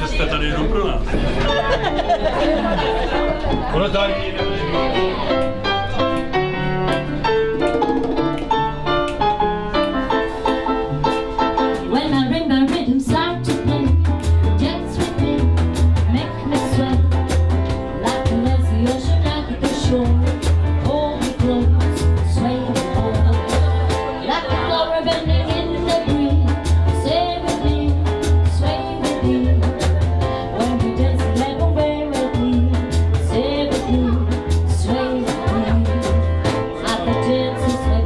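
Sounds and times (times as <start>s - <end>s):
electric guitar: 1.1s - 38.0s
percussion: 4.8s - 38.0s
woman singing: 11.8s - 38.0s.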